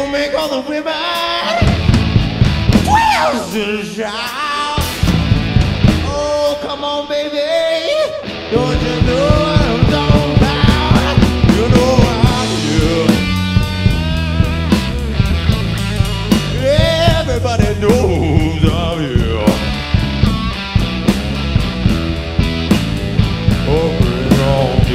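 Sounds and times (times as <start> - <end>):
man singing: 0.0 - 1.8, 2.9 - 5.1, 6.0 - 14.5, 15.6 - 20.0, 23.5 - 24.9
blues rock band playing: 0.0 - 24.9
steady drum beat: 1.6 - 6.6, 8.6 - 24.9.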